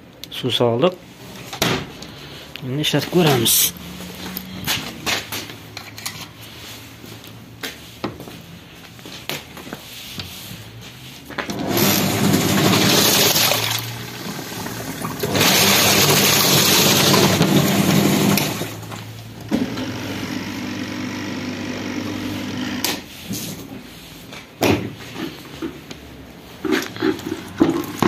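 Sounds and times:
washing machine churning water: 11.5 - 22.9
washing machine motor hum: 11.5 - 22.9.

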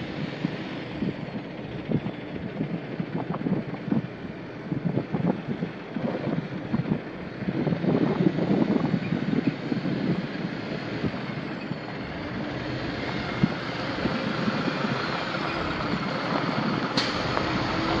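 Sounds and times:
diesel truck engine running: 0.0 - 18.0
wind buffeting microphone: 0.0 - 18.0.

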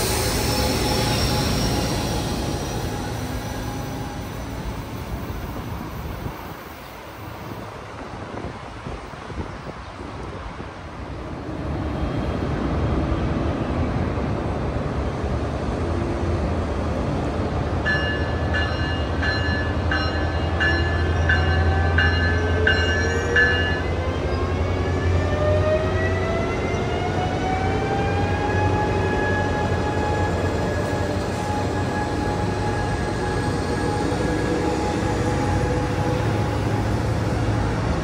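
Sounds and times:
train whine rising in pitch: 0.0 - 6.8, 17.9 - 38.0
passenger train rumbling: 0.0 - 38.0
bell ringing: 17.9 - 23.8.

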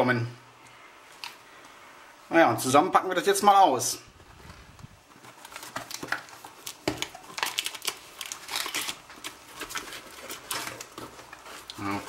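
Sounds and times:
cardboard box tearing open: 7.3 - 9.0.

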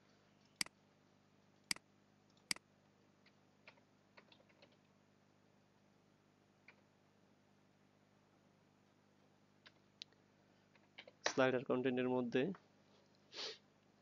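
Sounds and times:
computer mouse clicks: 3.2 - 4.9.

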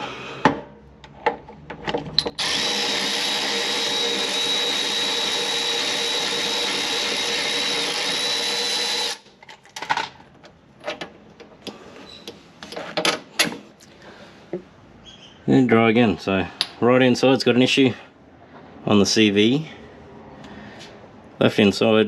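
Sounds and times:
power ratchet whining: 2.2 - 9.2.

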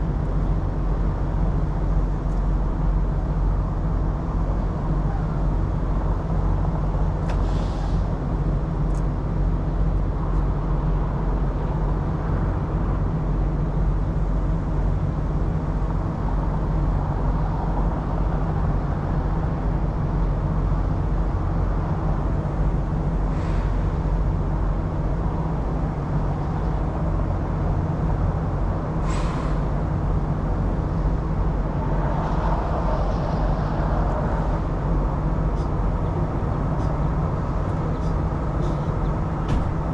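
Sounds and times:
diesel truck engine idling: 34.0 - 39.9.

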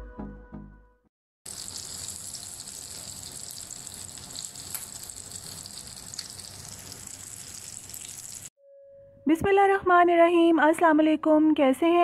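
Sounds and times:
patties sizzling in oil: 1.5 - 8.5.

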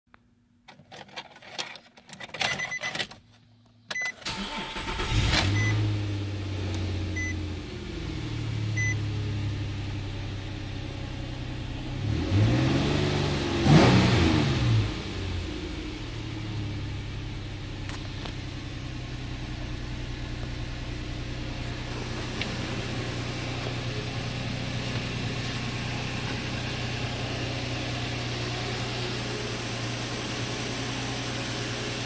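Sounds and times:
ignition clicks: 1.5 - 5.8, 17.8 - 18.4, 21.8 - 24.0
car engine starting and idling: 2.4 - 32.0
engine revving: 11.7 - 15.7.

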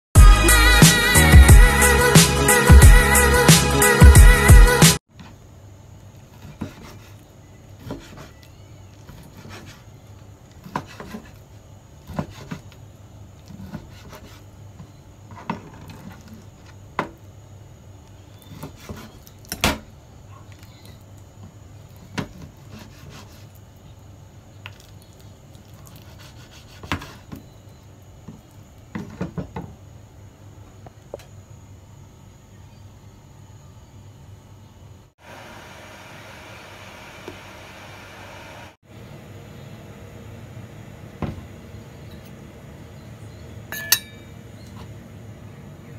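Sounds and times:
steady low hum: 30.0 - 45.9.

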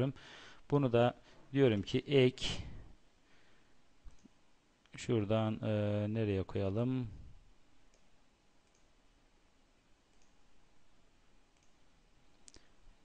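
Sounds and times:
faint computer mouse clicks: 4.0 - 4.4, 7.9 - 8.9, 10.1 - 10.4, 11.6 - 11.8.

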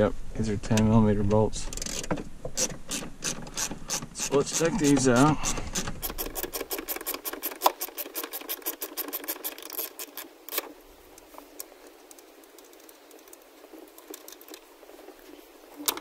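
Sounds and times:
socket ratchet clicking: 1.8 - 10.6.

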